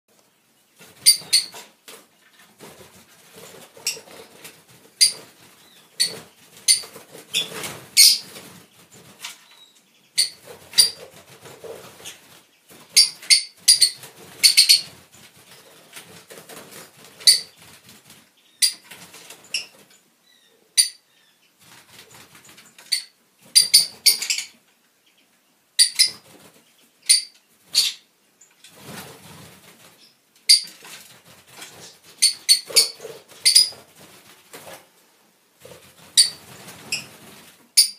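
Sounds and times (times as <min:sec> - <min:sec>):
lovebirds chirping: 0:00.2 - 0:16.0, 0:16.7 - 0:29.0, 0:31.7 - 0:34.7
wings flapping: 0:00.8 - 0:09.5, 0:10.2 - 0:19.9, 0:21.6 - 0:24.1, 0:28.7 - 0:30.0, 0:30.6 - 0:35.0, 0:35.6 - 0:37.6.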